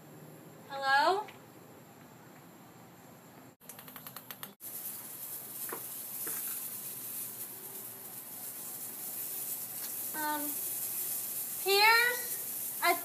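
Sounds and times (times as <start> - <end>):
steady hiss: 1.4 - 13.0.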